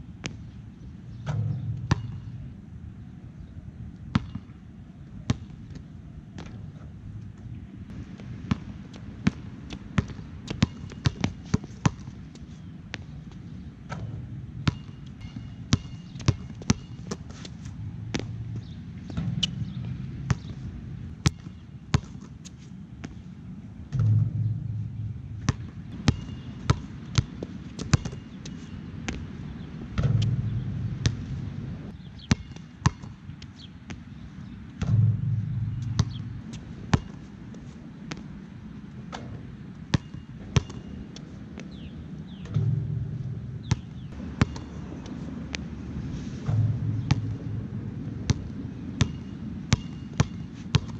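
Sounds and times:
basketball bouncing: 0:01.2 - 0:02.4, 0:04.1 - 0:04.5, 0:08.1 - 0:12.1, 0:13.9 - 0:20.6, 0:21.2 - 0:22.3, 0:23.9 - 0:29.2, 0:30.0 - 0:31.3, 0:32.2 - 0:33.2, 0:34.8 - 0:37.2, 0:39.2 - 0:41.0, 0:42.4 - 0:45.1, 0:46.5 - 0:50.9
low rumble: 0:01.2 - 0:03.4, 0:23.8 - 0:26.1, 0:29.9 - 0:31.9, 0:34.8 - 0:36.8, 0:42.5 - 0:49.0.

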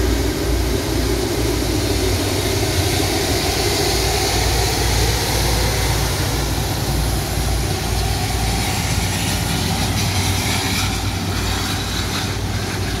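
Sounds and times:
jet engine noise: 0:00.0 - 0:13.0.

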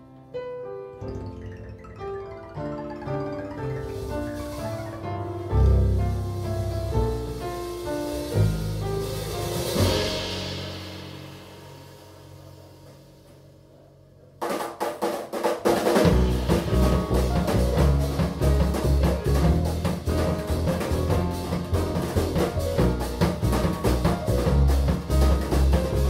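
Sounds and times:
acoustic piano: 0:00.0 - 0:14.4, 0:15.2 - 0:26.0
drum kit: 0:01.9 - 0:13.6, 0:14.4 - 0:26.0
upright double bass: 0:02.4 - 0:10.8, 0:16.0 - 0:26.0.

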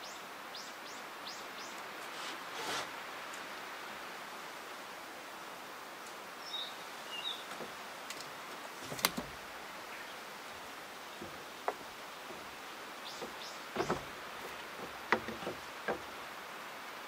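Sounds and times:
outdoor background hiss: 0:00.0 - 0:17.0
tape measure set on wood: 0:02.0 - 0:03.0.

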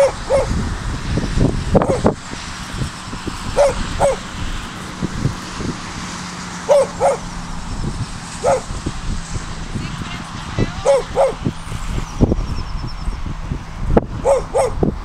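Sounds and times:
dog barking: 0:00.0 - 0:00.6, 0:03.5 - 0:04.3, 0:06.7 - 0:07.3, 0:08.4 - 0:08.7, 0:10.8 - 0:11.5, 0:14.2 - 0:14.8.

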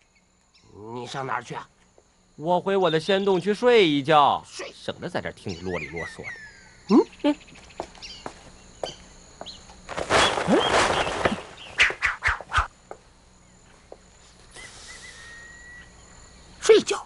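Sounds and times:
birds chirping: 0:00.0 - 0:16.7
curtain cloth rustling: 0:09.9 - 0:12.1.

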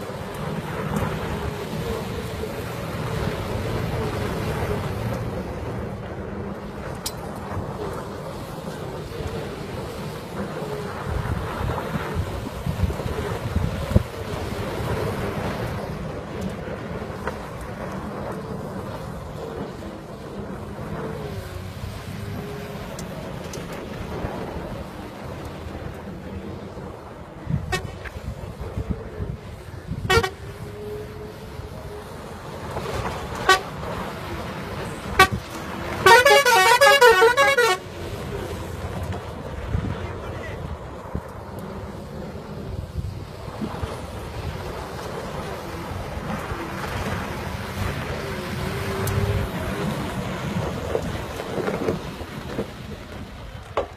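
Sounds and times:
wind buffeting microphone: 0:00.0 - 0:36.2, 0:37.6 - 0:53.9
bus engine running: 0:00.0 - 0:53.9
bus horn: 0:27.5 - 0:28.2, 0:29.9 - 0:31.1, 0:33.3 - 0:34.0, 0:35.0 - 0:38.2.

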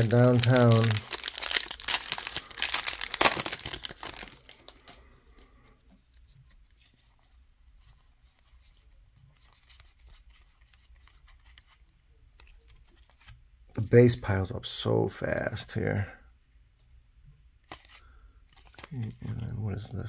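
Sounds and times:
plastic wrapper tearing and crinkling: 0:00.0 - 0:05.0
cards rustling and flicking: 0:00.0 - 0:13.4, 0:17.6 - 0:20.0.

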